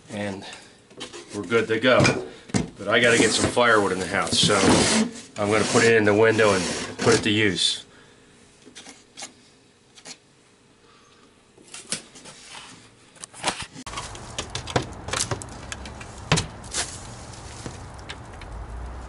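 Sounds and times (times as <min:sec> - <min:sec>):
low rumble: 0:13.9 - 0:19.0
hands tapping and knocking panels: 0:14.3 - 0:16.6.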